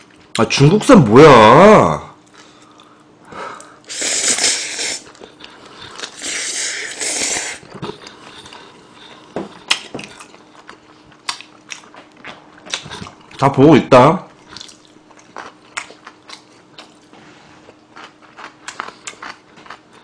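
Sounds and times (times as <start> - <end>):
person slurping noodles: 3.9 - 9.2
chewing with wet mouth smacks: 5.0 - 6.6, 7.2 - 13.4, 14.3 - 17.1, 17.7 - 20.0.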